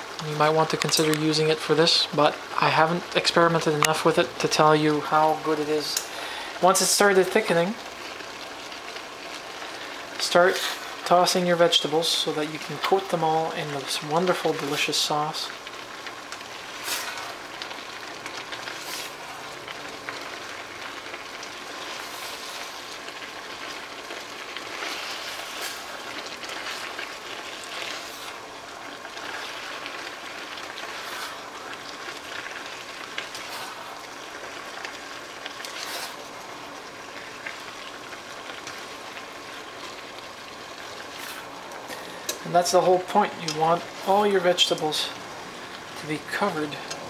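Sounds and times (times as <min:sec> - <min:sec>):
vegetables sizzling in a pan: 0:00.0 - 0:47.0
spatula scraping a pan: 0:16.7 - 0:17.4, 0:18.7 - 0:19.4, 0:21.8 - 0:22.9, 0:24.6 - 0:28.4, 0:30.8 - 0:31.5, 0:33.2 - 0:34.0, 0:35.6 - 0:36.3.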